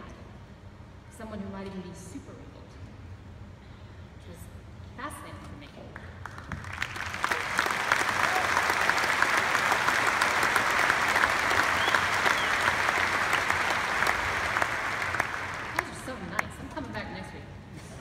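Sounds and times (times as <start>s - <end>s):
audience applauding: 6.2s - 16.6s.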